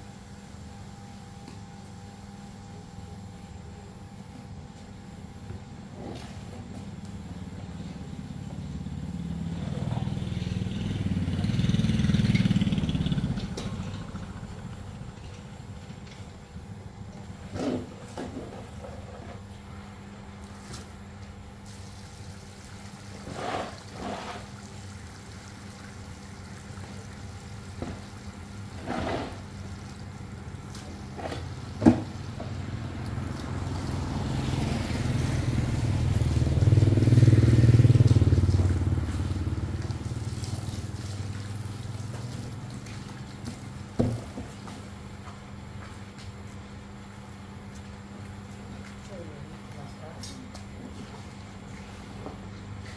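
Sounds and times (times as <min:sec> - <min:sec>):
vehicle engine passing by: 0:07.3 - 0:15.3, 0:30.9 - 0:43.5.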